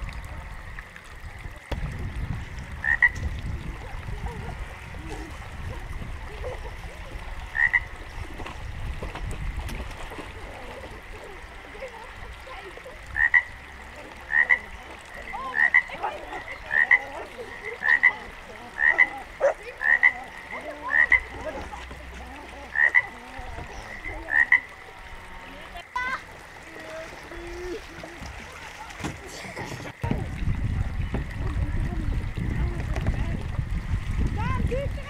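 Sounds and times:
frog croaking: 2.8 - 3.7, 7.3 - 8.1, 13.0 - 26.0.

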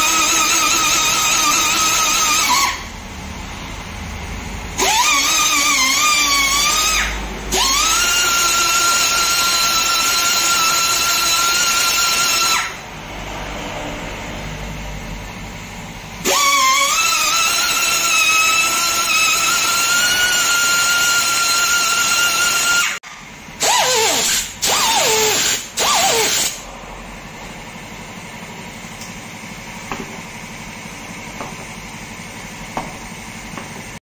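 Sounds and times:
air drill bursts: 0.0 - 2.9, 4.8 - 12.8, 16.2 - 26.7
pneumatic tool whining: 0.0 - 2.9, 4.7 - 12.9, 16.2 - 26.7.

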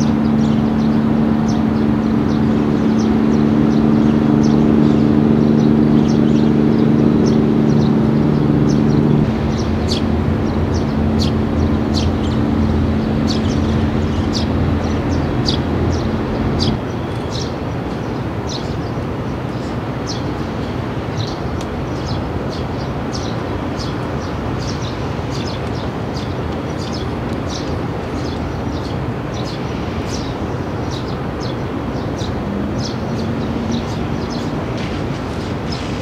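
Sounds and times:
low outdoor rumble: 0.0 - 18.4
small birds chirping: 0.0 - 36.0.

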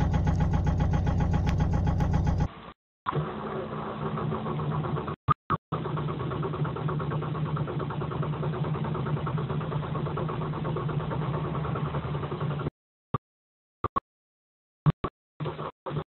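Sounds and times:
diesel engine idling: 0.0 - 2.5.

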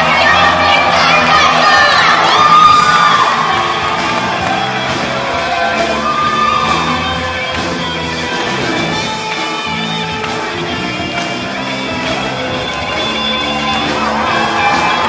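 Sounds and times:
crowd singing and shouting along: 0.0 - 9.0
live band playing loudly: 0.0 - 15.0
steady bass line: 0.0 - 15.0.

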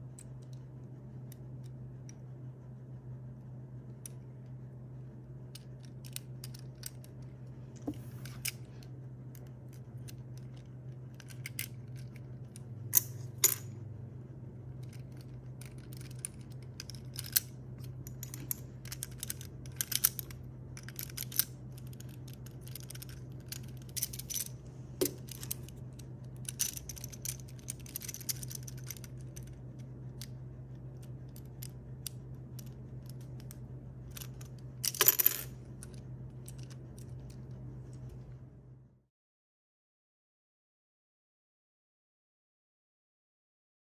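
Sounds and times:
steady low hum: 0.0 - 39.1
plastic pieces clicking: 18.2 - 25.7.

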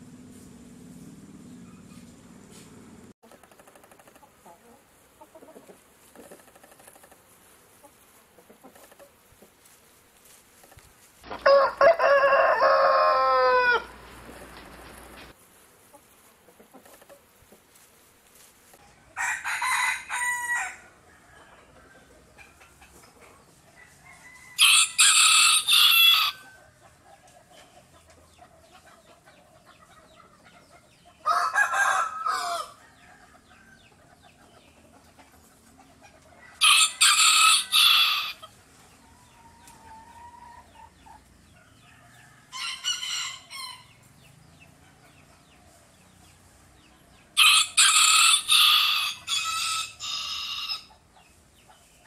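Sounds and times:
roosters crowing: 10.7 - 15.4, 18.8 - 22.8, 23.4 - 27.2, 31.1 - 34.2, 35.9 - 45.8, 47.1 - 51.1.

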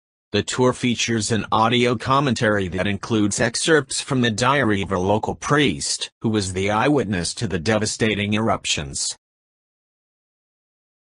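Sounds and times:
synthesized narrating voice: 0.4 - 9.2.

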